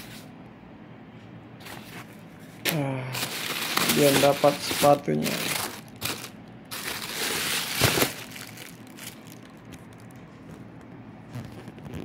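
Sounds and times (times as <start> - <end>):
plastic bag crinkling: 2.7 - 10.7.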